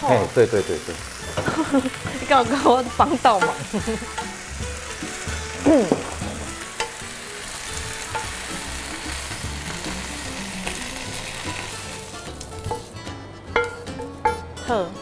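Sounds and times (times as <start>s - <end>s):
lettuce sizzling in oil: 0.0s - 14.9s
spatula tapping pan: 1.4s - 4.6s, 5.9s - 7.0s, 12.6s - 14.4s.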